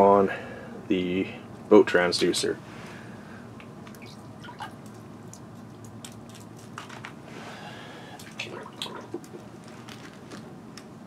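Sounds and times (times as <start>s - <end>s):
low steady hum: 0.0s - 11.0s
water dripping: 3.9s - 6.2s.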